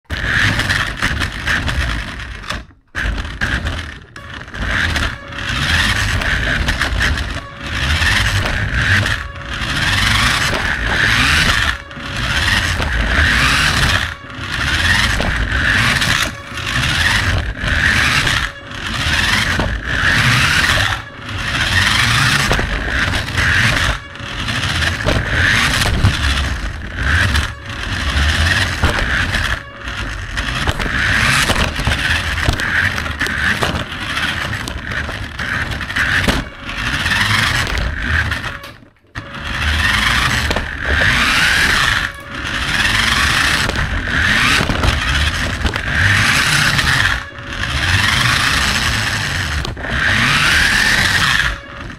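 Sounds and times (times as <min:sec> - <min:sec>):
tyres on hard floor: 0:00.1 - 0:49.8
toy car electric motor: 0:00.1 - 0:51.9.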